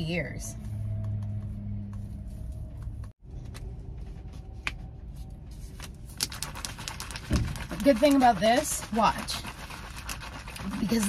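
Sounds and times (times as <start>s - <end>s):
powder poured into bottle: 6.1s - 11.0s.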